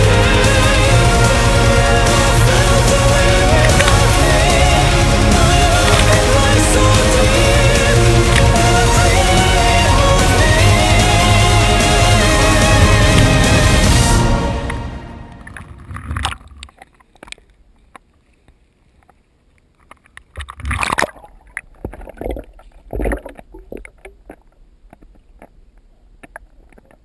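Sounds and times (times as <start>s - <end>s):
water sloshing and splashing: 2.9s - 6.8s, 12.8s - 18.0s, 19.1s - 27.0s.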